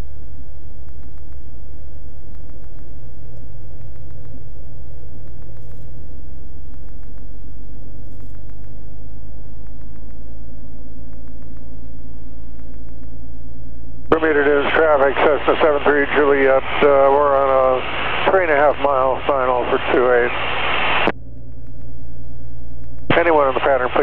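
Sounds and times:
plane engine idling: 0:07.8 - 0:24.0.

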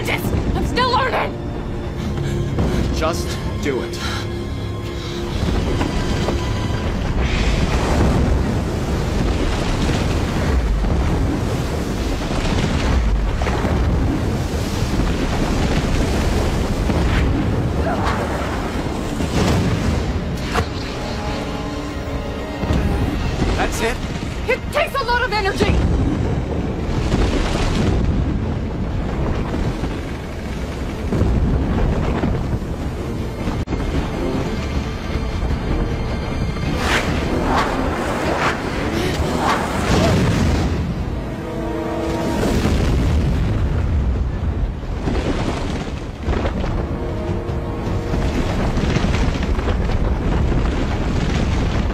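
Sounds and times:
ocean surf breaking on rocks: 0:06.8 - 0:20.3.

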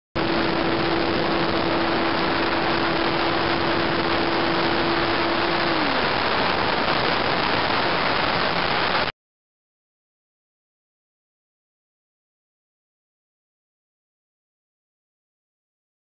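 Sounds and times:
electric motor tone: 0:00.2 - 0:09.0
static hiss: 0:00.2 - 0:09.1.

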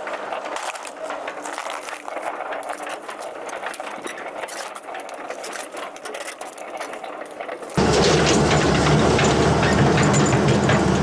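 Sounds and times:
engine running: 0:06.6 - 0:11.0
steel tracks clanking: 0:06.6 - 0:11.0.

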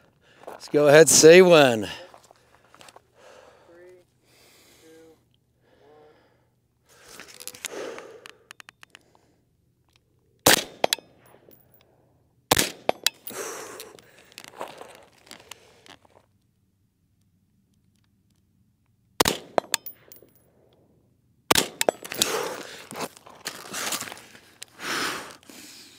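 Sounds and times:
rustling and handling clicks: 0:07.1 - 0:09.2, 0:12.9 - 0:16.6, 0:19.6 - 0:20.4
rifle shots: 0:10.4 - 0:11.1, 0:12.5 - 0:13.2, 0:19.2 - 0:20.0, 0:21.5 - 0:22.4.

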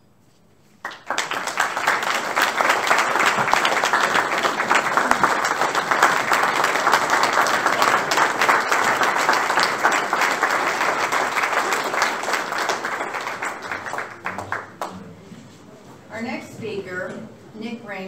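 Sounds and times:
audience applause: 0:00.8 - 0:15.2.

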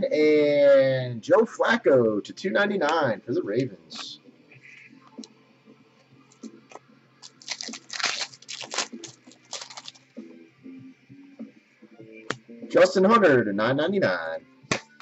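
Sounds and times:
wrapper tearing and crinkling: 0:07.2 - 0:10.0.

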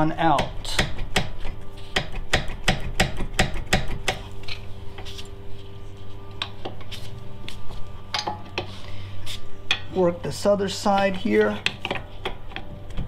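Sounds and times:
low hum: 0:04.0 - 0:13.0.

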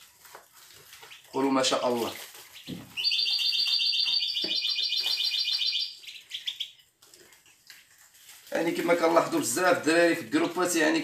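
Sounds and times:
bird twittering trill: 0:02.5 - 0:06.8.

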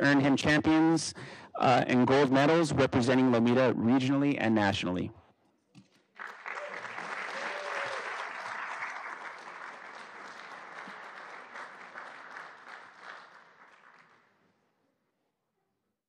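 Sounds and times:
audience applauding: 0:06.2 - 0:14.4.

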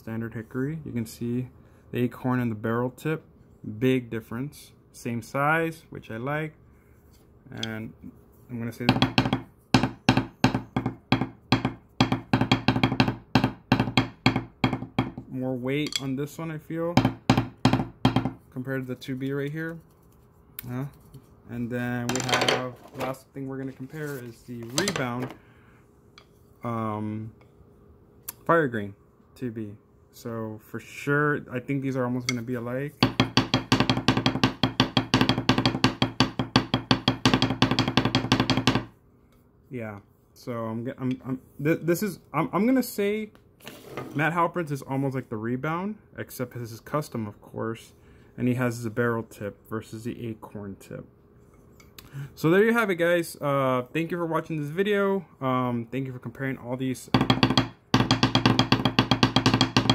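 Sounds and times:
drumsticks tapping on wooden table: 0:57.2 - 0:59.9.

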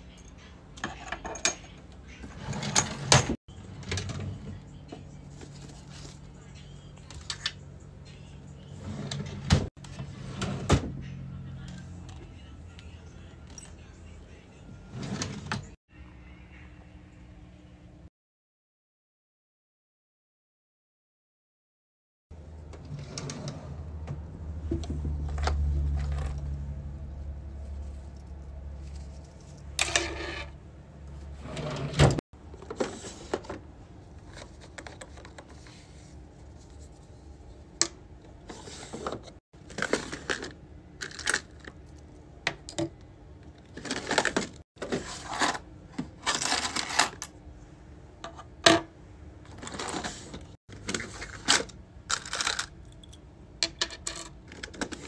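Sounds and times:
drawer sliding open: 0:02.3 - 0:04.3, 0:08.8 - 0:11.0, 0:14.9 - 0:15.8, 0:22.8 - 0:24.2, 0:31.4 - 0:33.6.

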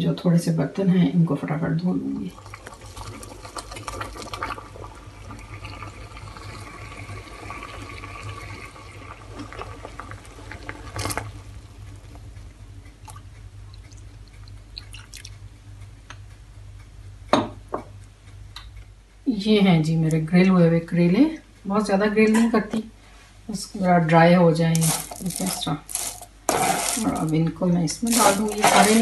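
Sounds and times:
water bubbling at a boil: 0:01.7 - 0:15.5.

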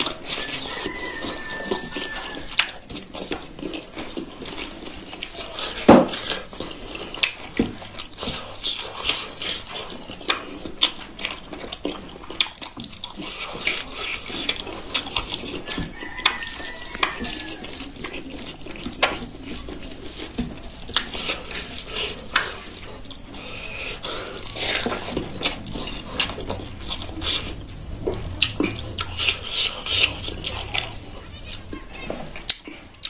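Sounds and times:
open-mouthed chewing and lip-smacking: 0:00.0 - 0:31.6
steady high hiss: 0:17.4 - 0:33.0.

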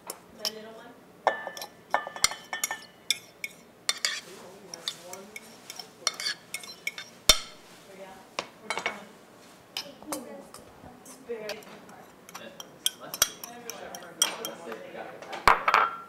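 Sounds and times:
utensil clinking against a bowl: 0:00.4 - 0:07.6, 0:09.8 - 0:14.9.

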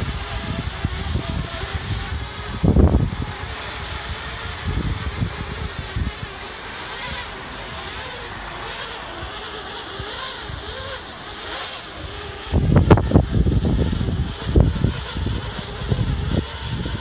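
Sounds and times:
drone propellers buzzing: 0:00.0 - 0:17.0
wind buffeting microphone: 0:00.0 - 0:17.0.

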